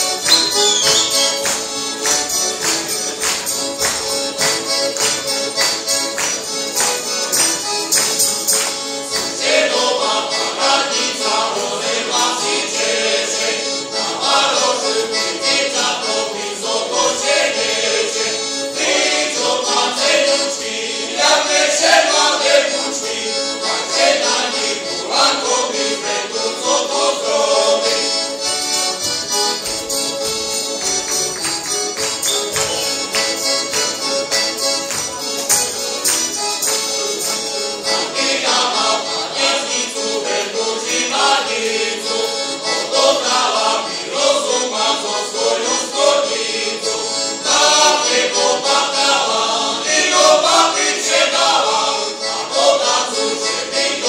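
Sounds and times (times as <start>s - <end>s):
accordion playing folk accompaniment: 0.0s - 54.0s
male choir singing: 9.1s - 28.2s, 37.8s - 54.0s.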